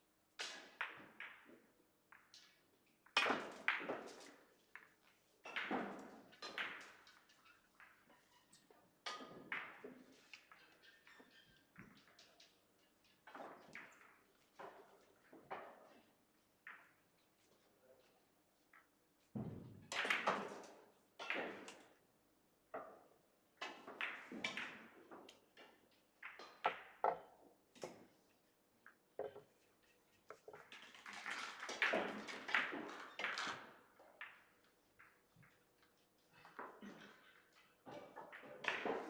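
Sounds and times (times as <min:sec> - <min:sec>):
billiard balls clicking: 0:28.8 - 0:33.6.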